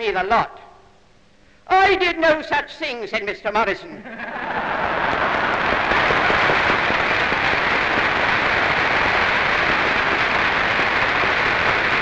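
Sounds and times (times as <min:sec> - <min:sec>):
audience laughing: 0:04.0 - 0:07.8
audience applauding: 0:04.4 - 0:12.0.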